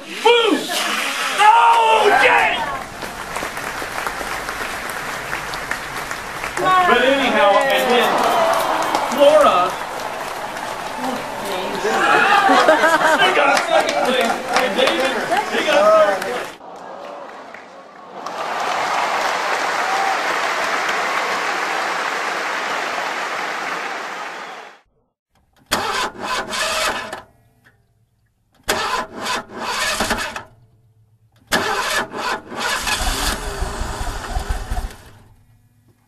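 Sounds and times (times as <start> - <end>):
engine starting and revving: 25.7 - 27.3, 28.7 - 30.6, 31.4 - 35.8.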